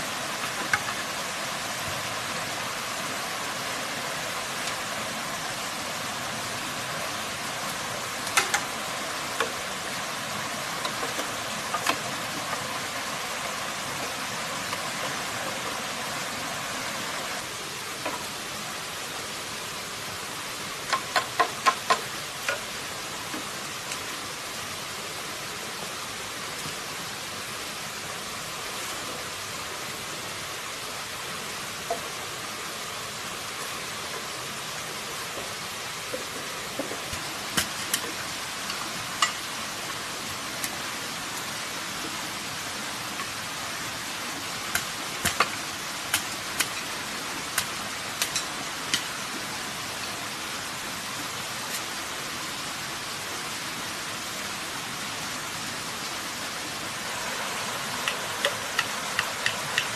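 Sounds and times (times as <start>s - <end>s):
steady rushing hiss: 0.0s - 59.9s
bamboo poles knocking: 8.3s - 8.7s, 10.8s - 12.7s, 20.9s - 22.7s, 44.8s - 46.9s, 58.0s - 59.9s.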